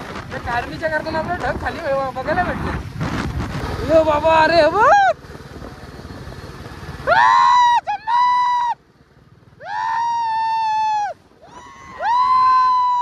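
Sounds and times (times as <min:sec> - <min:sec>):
man yelling whoops: 0:07.1 - 0:08.8, 0:09.6 - 0:13.0.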